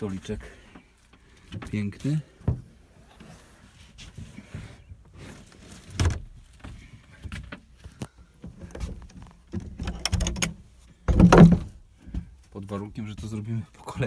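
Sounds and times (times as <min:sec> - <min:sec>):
loud thump: 0:11.1 - 0:11.8.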